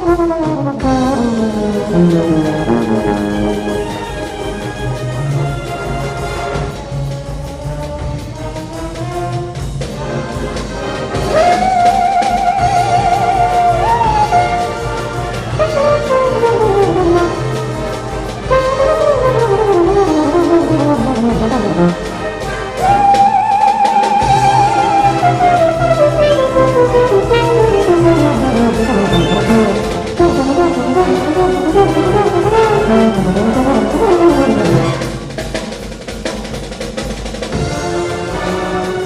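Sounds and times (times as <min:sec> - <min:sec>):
solo trombone glissandi: 0:00.0 - 0:06.3, 0:11.2 - 0:35.4
concert band playing jazz: 0:00.0 - 0:39.0.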